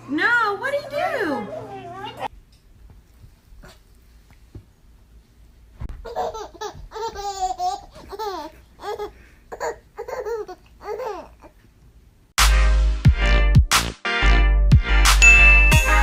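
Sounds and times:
baby laughing: 0:06.0 - 0:11.6.

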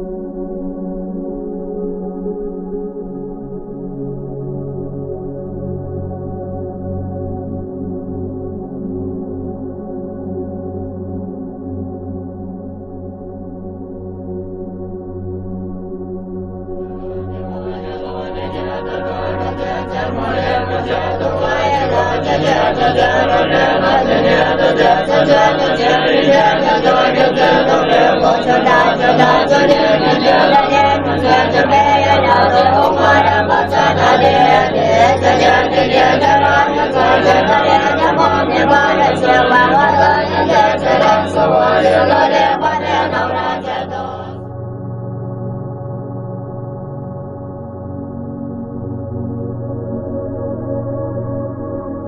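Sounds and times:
steady low drone: 0:00.0 - 0:52.0
voices chanting prayer: 0:17.1 - 0:44.4.

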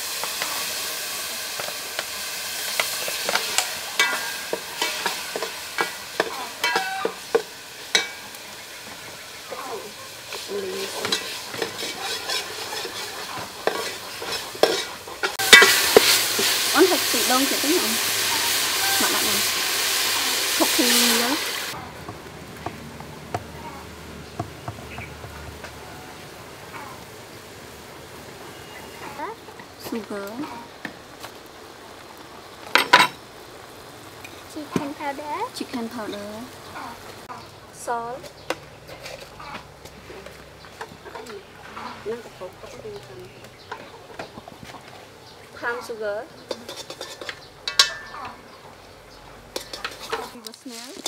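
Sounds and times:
food frying in oil: 0:00.0 - 0:51.0
metal ladle clinking in pot: 0:04.0 - 0:08.2, 0:11.0 - 0:16.2, 0:46.6 - 0:48.4.

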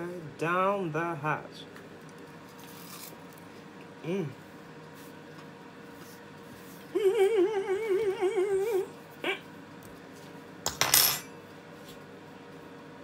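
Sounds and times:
woman humming while eating: 0:06.8 - 0:09.5.

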